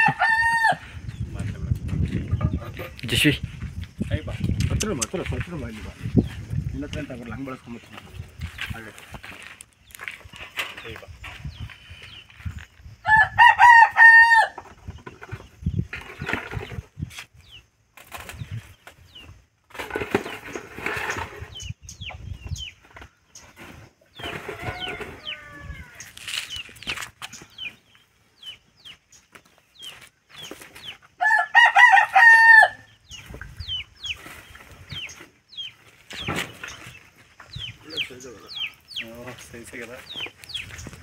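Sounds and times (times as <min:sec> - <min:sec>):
rooster crowing: 0:00.0 - 0:00.9, 0:13.0 - 0:14.6, 0:24.3 - 0:26.1, 0:31.2 - 0:32.9
chickens clucking: 0:33.1 - 0:41.0.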